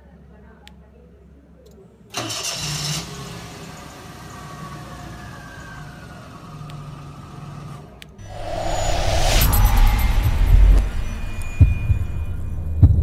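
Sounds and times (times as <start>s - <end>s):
car starter cranking: 2.2s - 3.0s.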